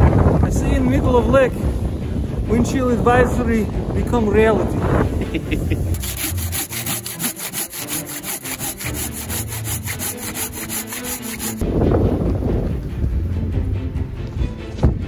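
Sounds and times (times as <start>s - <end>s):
hand saw cutting log: 5.9s - 11.6s.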